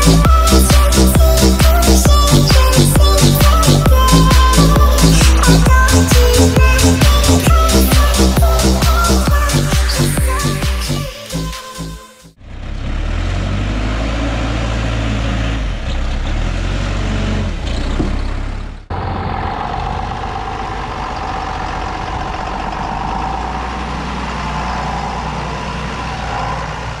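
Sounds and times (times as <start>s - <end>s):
diesel engine running: 0.0s - 27.0s
steady whine: 18.9s - 27.0s.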